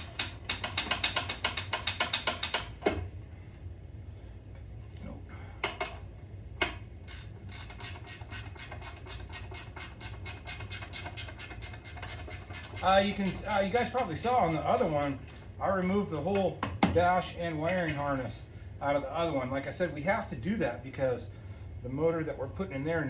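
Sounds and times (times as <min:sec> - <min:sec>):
hand ratchet clicking: 0:00.0 - 0:02.7, 0:06.6 - 0:15.4.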